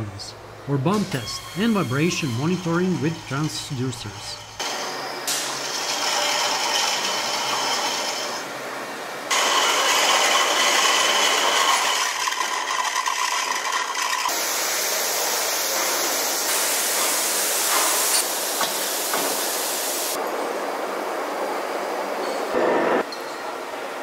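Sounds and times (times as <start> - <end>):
metal lathe cutting steel: 0.9 - 8.5, 9.3 - 14.4.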